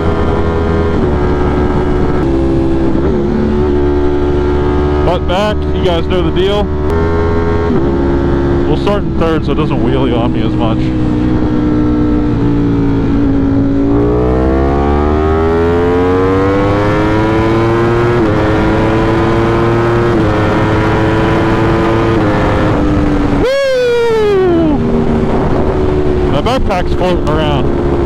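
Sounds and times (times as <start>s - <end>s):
wind on microphone: 0.0s - 5.0s, 20.1s - 28.0s
motorcycle engine accelerating: 0.0s - 28.0s.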